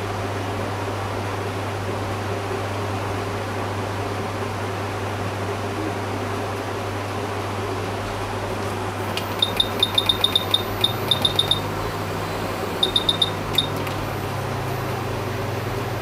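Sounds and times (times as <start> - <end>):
equipment hum and fan noise: 0.0 - 16.0
electronic button beeps: 9.1 - 14.7.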